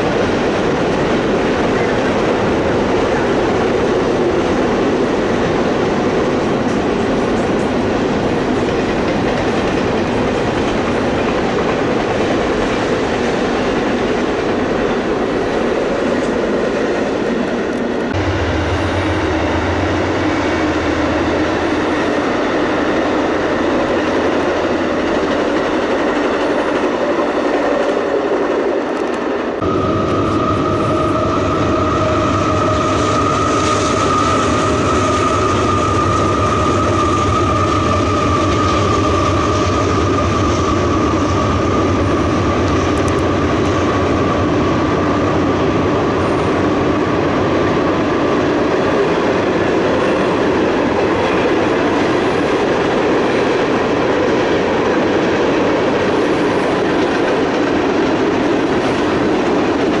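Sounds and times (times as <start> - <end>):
train wheels rumbling on rail: 0.0 - 60.0
high wheel squeal: 29.6 - 42.4.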